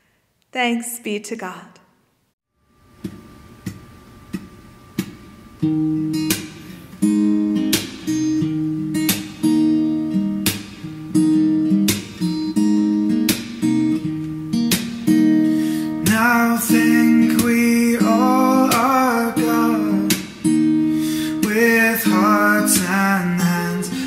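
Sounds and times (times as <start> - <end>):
strummed acoustic guitar: 3.0 - 24.0
person singing: 16.0 - 20.2, 21.3 - 24.0.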